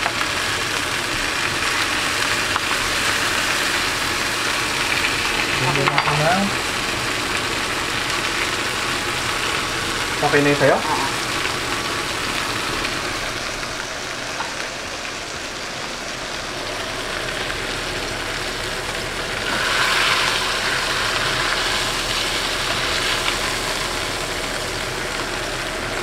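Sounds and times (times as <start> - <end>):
steaks sizzling in pans: 0.0 - 26.0.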